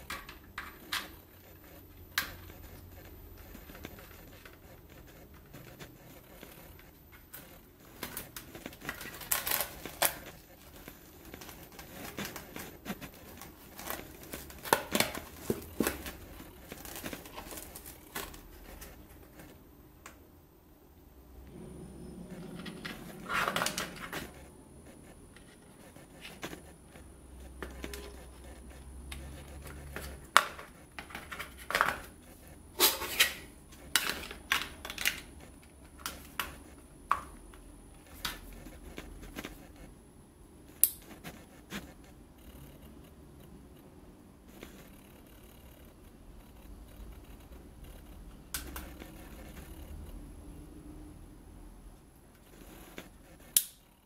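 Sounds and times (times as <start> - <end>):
plastic crinkling and rustling: 0.0 - 19.6, 22.3 - 39.9.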